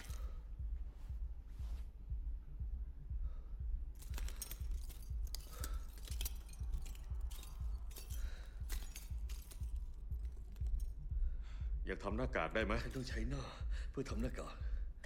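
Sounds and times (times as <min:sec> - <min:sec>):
muffled bass beat: 0:00.1 - 0:04.0, 0:09.2 - 0:15.0
small clicks and clinks of handling: 0:04.0 - 0:10.9.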